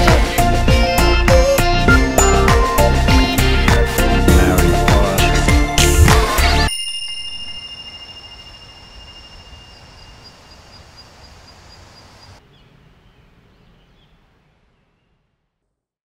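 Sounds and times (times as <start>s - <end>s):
high ringing tone: 2.2s - 3.3s, 6.7s - 10.3s.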